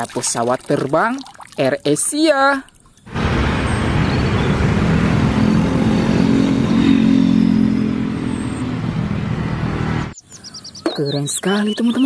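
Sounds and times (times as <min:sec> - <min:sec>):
jet airliner engines roaring: 0:03.1 - 0:10.2
low drone: 0:03.1 - 0:10.2.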